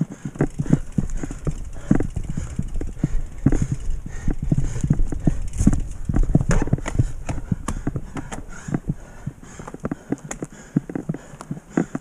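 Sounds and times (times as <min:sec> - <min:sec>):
bike knocking and rattling: 0:00.0 - 0:12.0
low rumble: 0:00.2 - 0:09.7.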